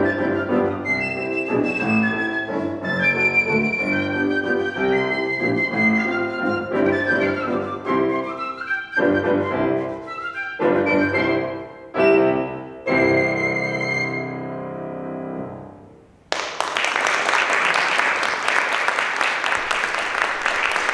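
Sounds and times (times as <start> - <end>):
flute and piano chords: 0.0 - 16.0
audience applause: 16.3 - 20.9.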